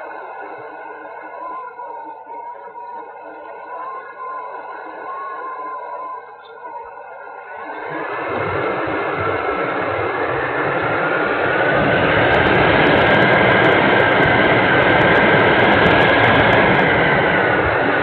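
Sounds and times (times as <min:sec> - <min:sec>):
air rush and propeller noise: 0:07.0 - 0:18.0.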